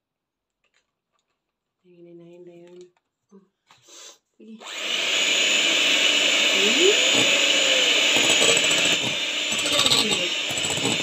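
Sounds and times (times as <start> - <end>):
electric hand mixer whisking: 4.6 - 11.0.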